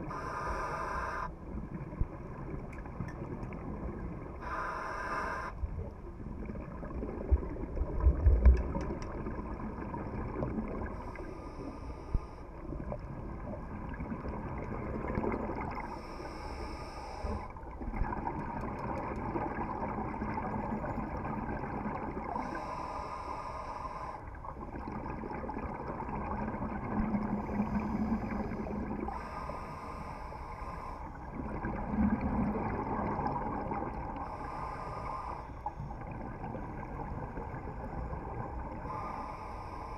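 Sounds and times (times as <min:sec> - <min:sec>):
scuba regulator hissing inhale: 0:00.0 - 0:01.3, 0:04.4 - 0:05.6, 0:15.8 - 0:17.5, 0:22.4 - 0:24.3, 0:27.6 - 0:31.2, 0:34.2 - 0:35.7, 0:38.8 - 0:39.9.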